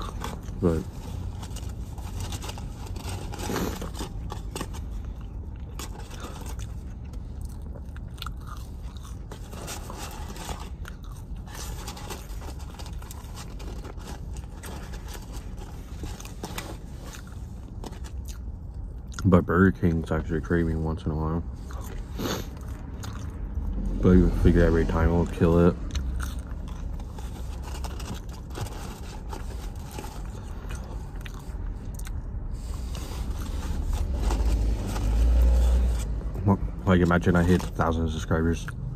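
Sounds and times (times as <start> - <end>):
person chewing crunchy food: 0.0 - 19.3, 21.6 - 23.9, 25.8 - 34.7.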